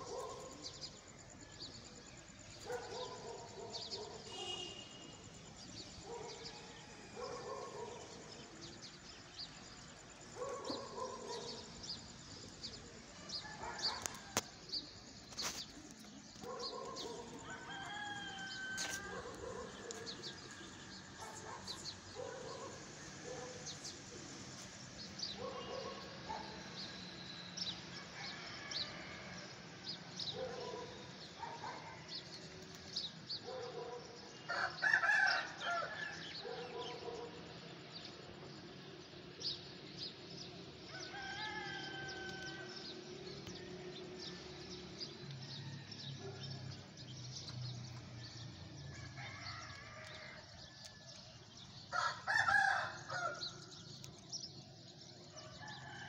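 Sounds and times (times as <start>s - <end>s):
rooster crowing: 17.4s - 19.2s, 28.2s - 29.4s, 34.5s - 36.2s, 40.9s - 42.8s, 48.9s - 50.4s, 51.9s - 53.5s.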